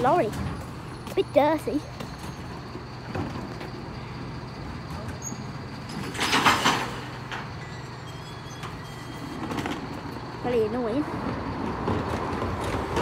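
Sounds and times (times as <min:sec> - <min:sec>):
diesel engine running: 0:00.0 - 0:13.0
bin lift: 0:04.8 - 0:10.0.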